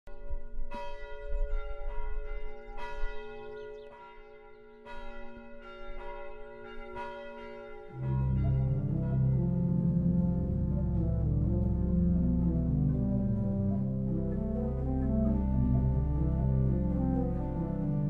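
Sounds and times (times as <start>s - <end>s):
church bells ringing: 0.1s - 18.0s
low sustained musical chord: 7.8s - 18.0s.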